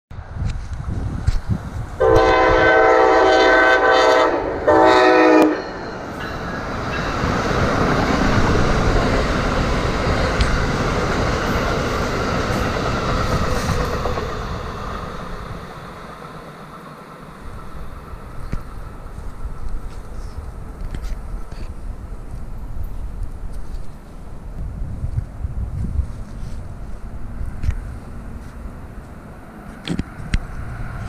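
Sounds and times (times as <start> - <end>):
train wheels rumbling on rails: 0.2 - 31.0
train horn blasts: 2.0 - 5.9.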